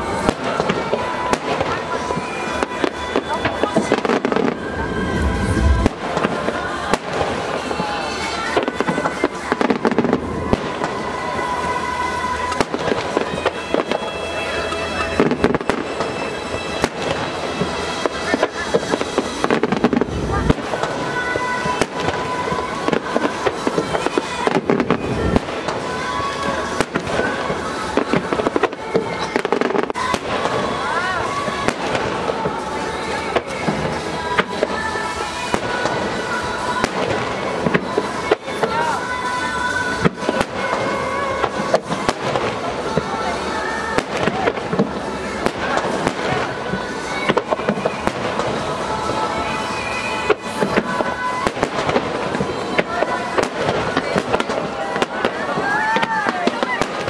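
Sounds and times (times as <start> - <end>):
firework crackle: 0.0 - 57.0
fireworks bursting with bangs: 0.0 - 57.0
music playing: 0.0 - 57.0.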